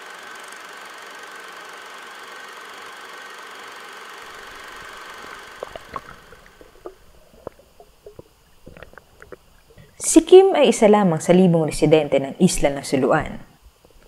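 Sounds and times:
steady hum with thin whine: 0:00.0 - 0:14.0
underwater clicks and knocks: 0:04.8 - 0:09.8.

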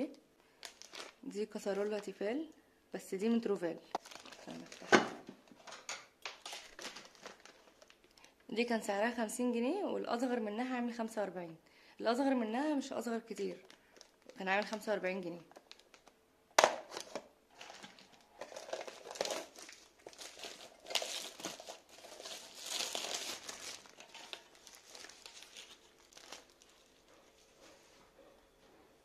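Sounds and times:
plastic wrapping crinkling and tearing: 0:00.6 - 0:02.1, 0:03.9 - 0:08.4, 0:13.4 - 0:27.4.

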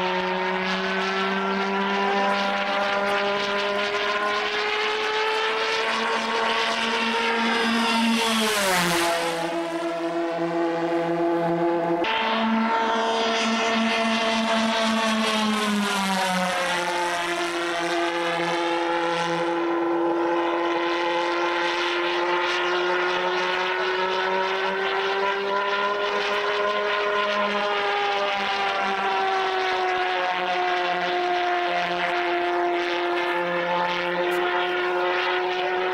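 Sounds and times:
model jet engine drone: 0:00.0 - 0:35.9.

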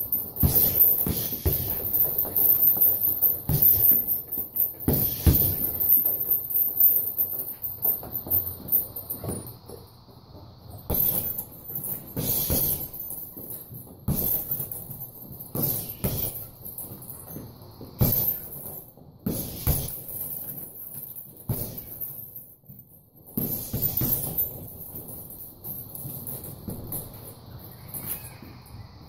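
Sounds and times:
chain jingling: 0:00.0 - 0:10.0, 0:10.8 - 0:28.5
punches thudding into heavy bag: 0:00.4 - 0:02.3, 0:04.8 - 0:05.9, 0:10.9 - 0:13.0, 0:14.0 - 0:16.5, 0:18.0 - 0:20.2, 0:21.4 - 0:22.1, 0:23.3 - 0:25.1.

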